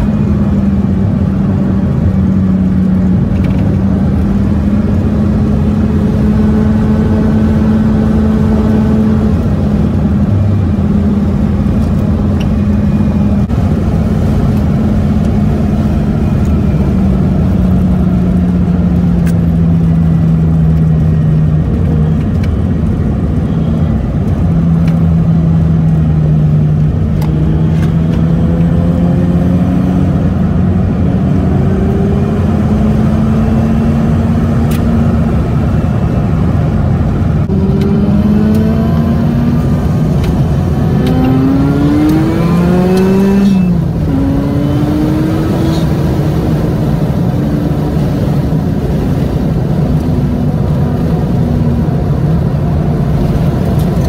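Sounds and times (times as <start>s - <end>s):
rotary engine revving: 24.9s - 54.0s.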